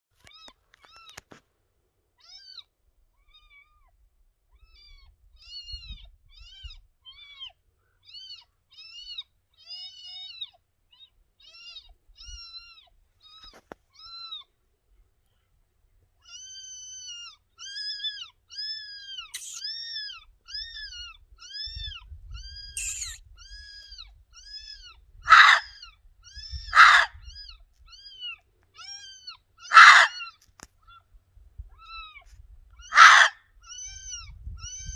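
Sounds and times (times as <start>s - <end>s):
fox barking yips: 16.2s - 31.0s, 32.8s - 34.9s.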